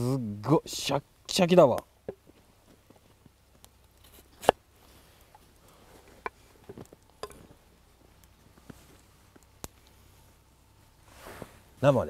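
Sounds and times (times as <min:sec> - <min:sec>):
knife cutting crunchy root: 0:04.0 - 0:04.6.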